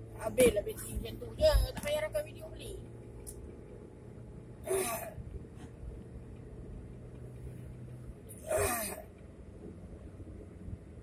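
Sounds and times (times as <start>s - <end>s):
road noise in car cabin: 0.0s - 11.0s
person vocal bursts: 4.6s - 5.2s, 8.4s - 9.1s.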